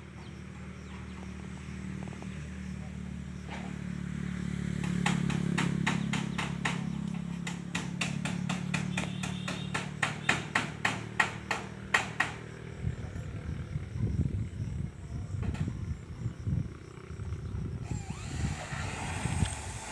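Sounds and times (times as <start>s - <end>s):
hammer striking metal roofing: 4.8s - 12.4s.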